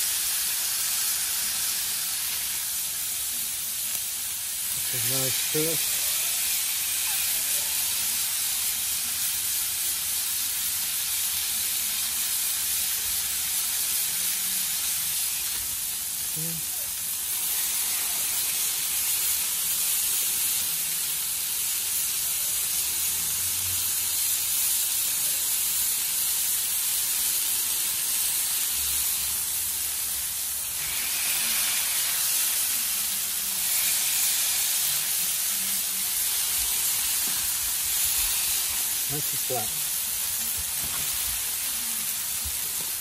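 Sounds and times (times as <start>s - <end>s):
burger patties sizzling on griddle: 0.0s - 43.0s.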